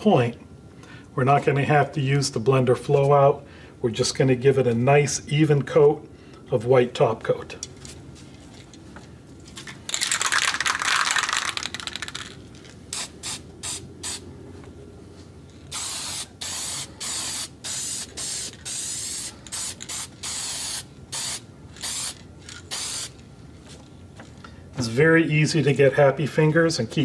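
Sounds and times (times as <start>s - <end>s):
spray can mixing ball rattling: 9.6s - 13.4s, 15.7s - 23.1s
spray can hissing bursts: 12.9s - 14.2s, 15.7s - 23.2s.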